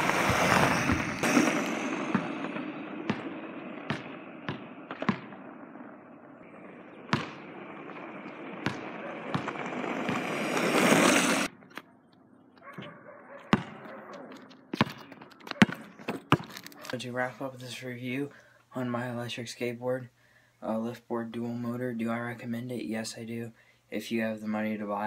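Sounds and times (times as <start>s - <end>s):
skateboard wheels rolling on asphalt: 0.0s - 12.5s.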